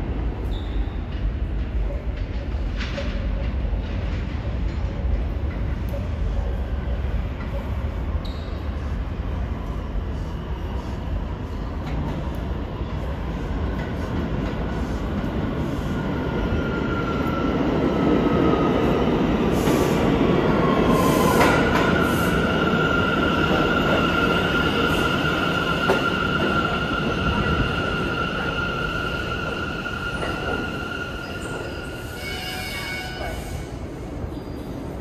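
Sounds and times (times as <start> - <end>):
subway train rumbling on rails: 0.0 - 35.0
high wheel squeal: 8.2 - 8.7.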